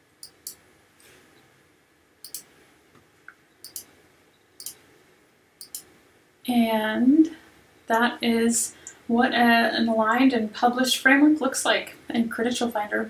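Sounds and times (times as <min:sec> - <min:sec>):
computer mouse clicking: 0:00.2 - 0:00.6, 0:02.2 - 0:02.5, 0:03.3 - 0:03.9, 0:04.6 - 0:04.8, 0:05.6 - 0:05.9.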